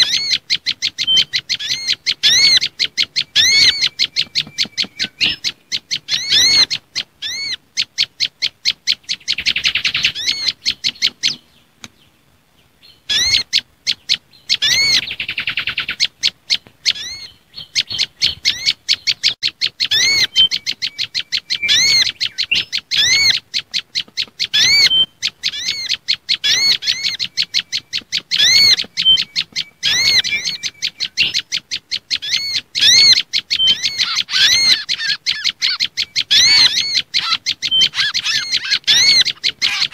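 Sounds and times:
bird trills: 0.0 - 11.7, 12.8 - 39.9
sharp bird chirps: 0.0 - 11.7, 12.8 - 39.9
high whistled bird notes: 24.4 - 31.5, 32.2 - 39.9.

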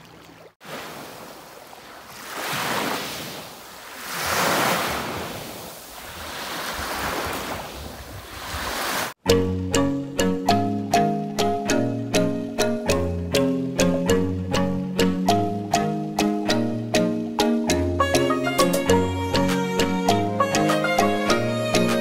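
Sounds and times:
small waves washing onto beach: 0.0 - 9.2.

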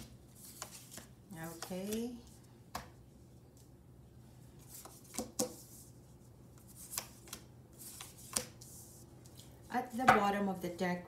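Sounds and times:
cards snapping and tapping on table: 2.7 - 3.0, 4.8 - 5.6.

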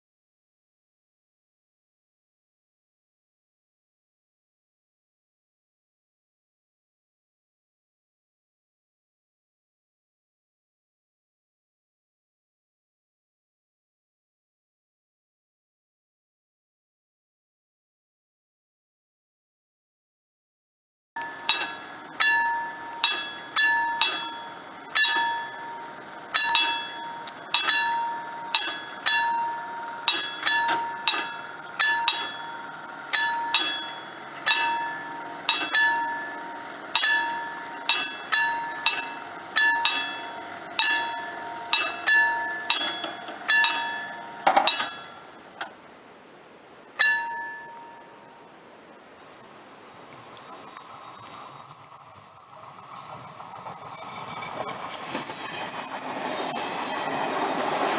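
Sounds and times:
level crossing bell ringing: 21.2 - 45.2
loud metal clank: 21.4 - 45.2.

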